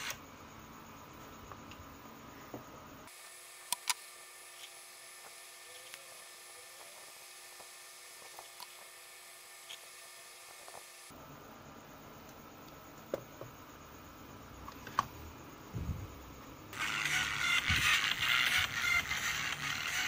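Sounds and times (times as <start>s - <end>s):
faint high whine and hiss: 0.0s - 20.0s
music: 16.7s - 20.0s.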